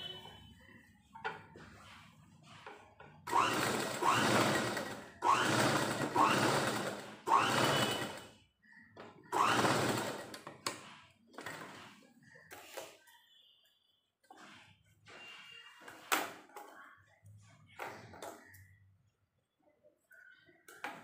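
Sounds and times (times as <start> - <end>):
sewing machine whirring: 3.2 - 12.8.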